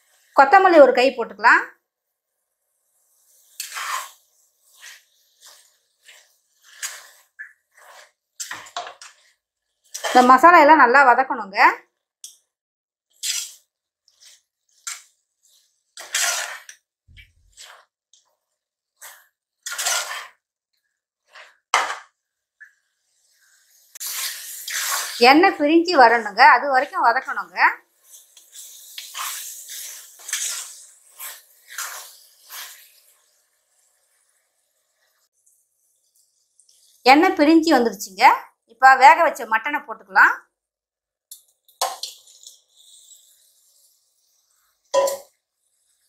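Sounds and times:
masala frying: 0.0 - 46.0
spatula scraping a pot: 2.8 - 10.4, 13.1 - 25.2, 27.9 - 35.4, 41.7 - 46.0.

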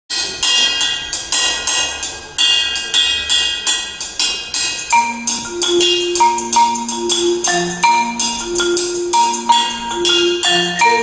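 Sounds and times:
cymbal and drum hits: 0.1 - 6.7
marimba and vibraphone notes: 4.9 - 11.0.

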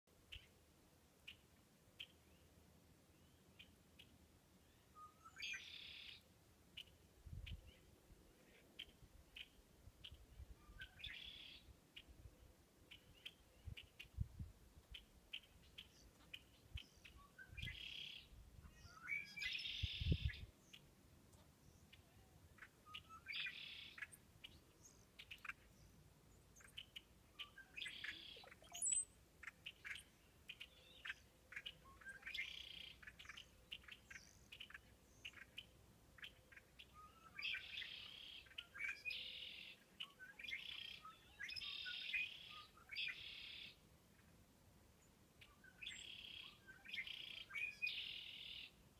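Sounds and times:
fox kit chirping calls: 26.6 - 43.8.

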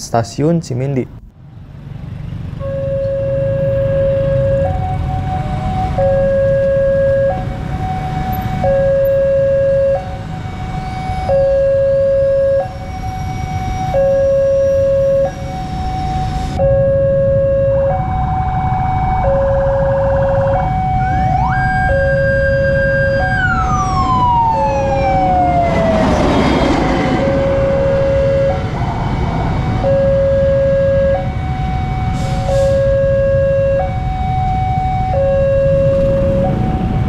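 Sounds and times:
traffic rumble: 0.0 - 37.0
rush of passing vehicle: 1.4 - 11.1, 14.7 - 37.0
level crossing two-tone alarm: 5.8 - 7.5, 8.4 - 10.1, 10.8 - 26.0, 29.8 - 37.0
sweeping tone: 12.7 - 31.3.

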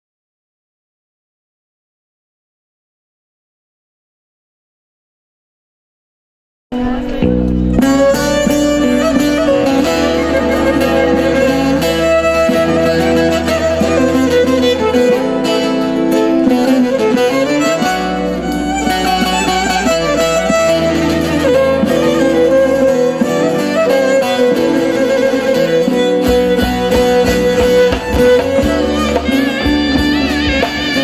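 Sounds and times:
bowed fiddle melody: 6.8 - 31.0
plucked lute: 6.8 - 31.0
steady low bass: 6.9 - 15.4.

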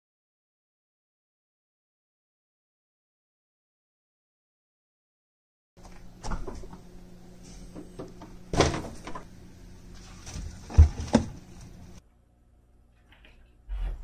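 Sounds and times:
refrigerator hum: 5.8 - 14.0.

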